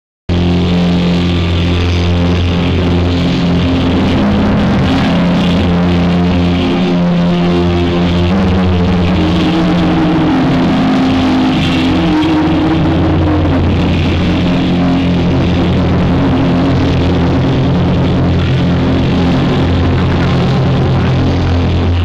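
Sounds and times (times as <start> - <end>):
heavy low bass: 0.3 - 22.0.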